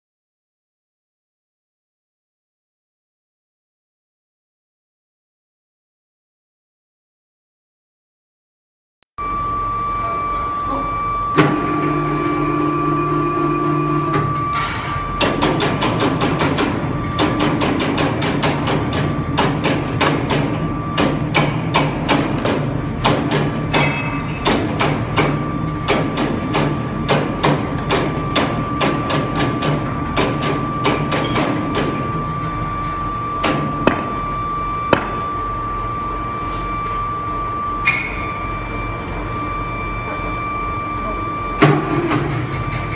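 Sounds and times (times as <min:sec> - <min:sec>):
high whine: 0:09.2 - 0:17.6, 0:19.0 - 0:42.9
machinery hum: 0:09.2 - 0:42.9.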